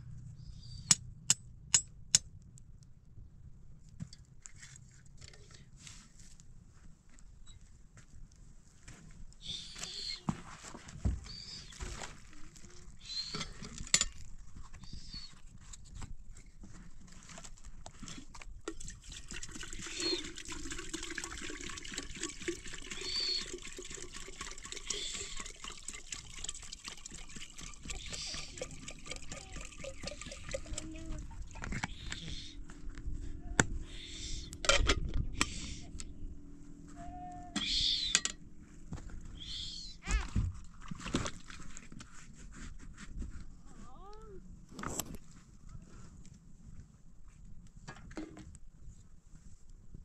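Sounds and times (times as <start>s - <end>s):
firewood rustling and scraping: 4.0s - 7.2s, 8.4s - 19.2s, 40.5s - 43.7s
water trickling and splashing: 18.7s - 32.2s.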